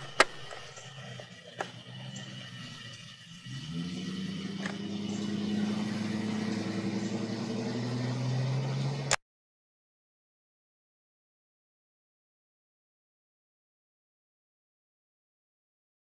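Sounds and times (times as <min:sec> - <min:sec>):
vehicle engine running: 0:00.0 - 0:09.2.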